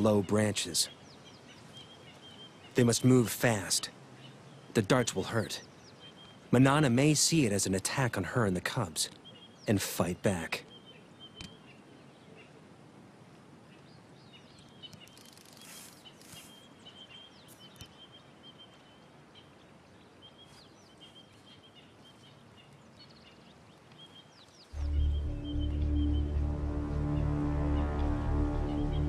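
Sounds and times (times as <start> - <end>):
soft background hiss: 0.0 - 26.7
small birds chirping: 0.0 - 29.0
loud low sustained music: 24.8 - 29.0.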